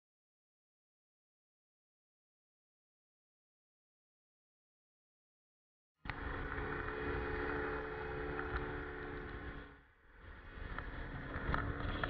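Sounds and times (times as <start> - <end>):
scooter engine running high: 6.1 - 12.0
wind rush on microphone: 6.1 - 12.0.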